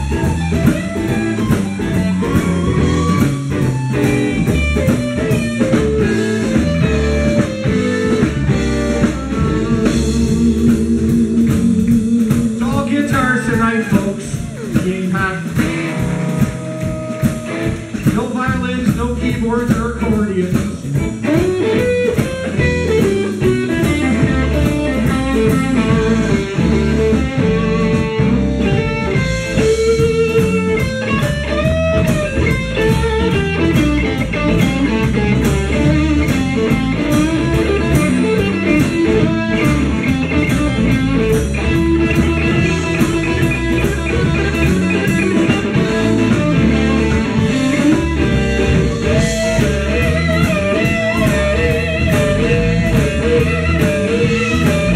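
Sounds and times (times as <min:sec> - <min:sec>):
bass and drums: 0:00.0 - 0:54.9
blues guitar lead with bending notes: 0:00.0 - 0:54.9.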